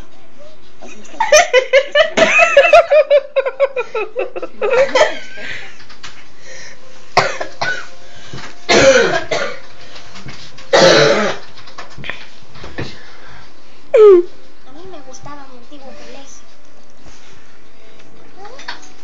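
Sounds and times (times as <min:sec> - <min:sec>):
person giggling: 0:01.2 - 0:05.7, 0:14.0 - 0:14.3
short coughs: 0:08.7 - 0:09.6.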